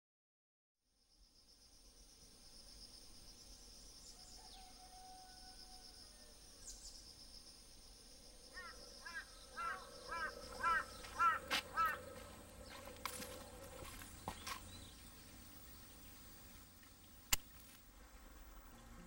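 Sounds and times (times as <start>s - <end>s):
high-pitched insect drone: 1.4s - 16.3s
bird repeated short calls: 8.6s - 12.1s.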